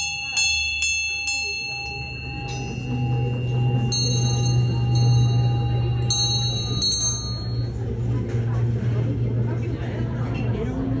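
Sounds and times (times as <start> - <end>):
hand bells ringing: 0.0 - 7.9
steady low hum: 0.0 - 11.0.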